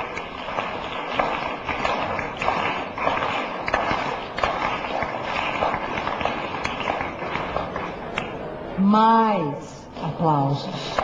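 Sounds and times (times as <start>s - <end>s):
crowd applause: 0.0s - 7.9s.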